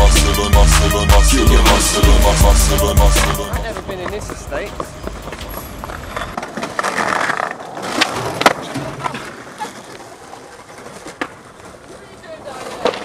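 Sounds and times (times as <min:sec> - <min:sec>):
skateboard wheels rolling on pavement: 0:03.1 - 0:13.0
skateboard clacking on ground: 0:03.7 - 0:13.0.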